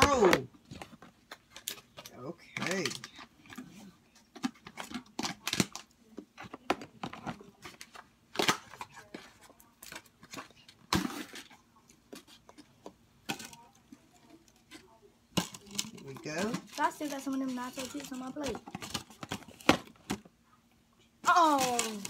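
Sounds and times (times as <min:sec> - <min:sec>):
chip packaging crinkling: 0:21.3 - 0:22.0.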